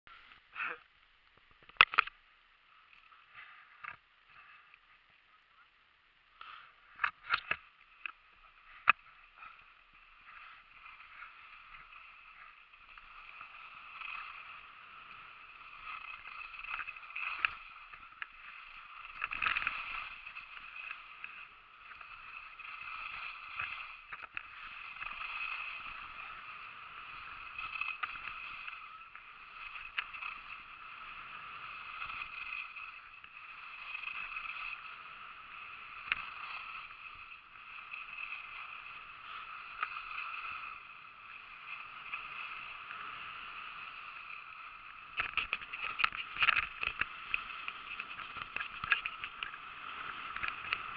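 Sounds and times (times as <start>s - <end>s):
skis swishing on snow: 7.8s - 50.9s.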